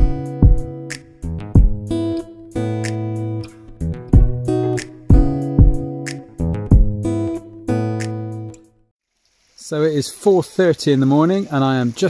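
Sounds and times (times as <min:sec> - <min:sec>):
steady beat: 0:00.0 - 0:00.8, 0:01.6 - 0:01.9, 0:04.1 - 0:07.2
strummed acoustic guitar: 0:00.0 - 0:08.7.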